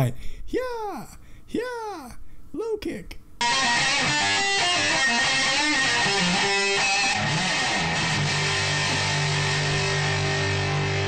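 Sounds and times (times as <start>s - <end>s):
electric guitar strumming chords: 3.4s - 11.0s.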